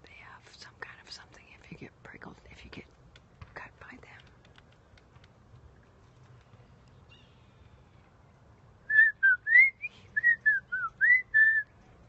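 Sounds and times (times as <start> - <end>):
person whistling: 8.9 - 11.6.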